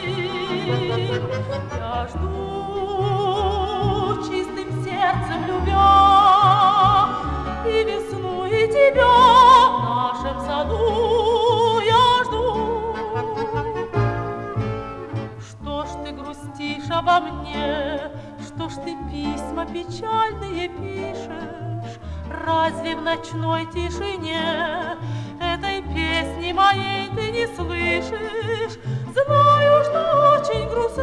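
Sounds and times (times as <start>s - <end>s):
woman singing with vibrato: 0.0s - 14.4s, 15.4s - 31.0s
instrumental ensemble: 0.0s - 23.4s.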